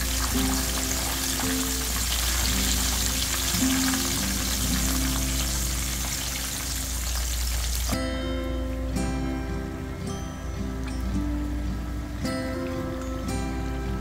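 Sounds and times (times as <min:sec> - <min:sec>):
deep-frying sizzle in oil: 0:00.0 - 0:08.0
soft background music: 0:00.0 - 0:14.0.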